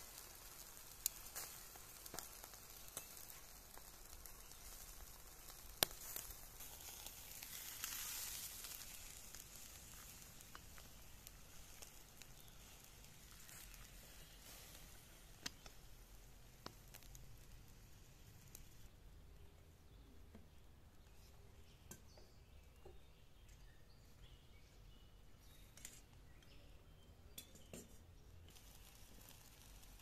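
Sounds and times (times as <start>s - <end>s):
meat sizzling on charcoal grill: 0.0s - 18.9s, 27.3s - 30.0s
charcoal crackles and pops: 0.0s - 26.7s, 27.3s - 30.0s.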